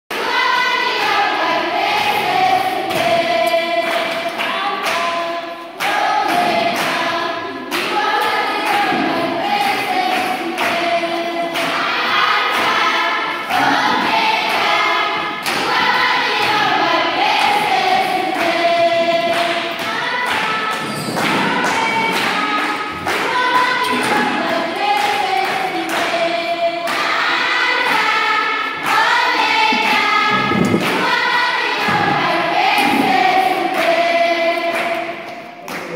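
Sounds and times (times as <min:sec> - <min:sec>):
girls choir singing: 0:00.1 - 0:35.9
thumping beat: 0:28.9 - 0:33.6.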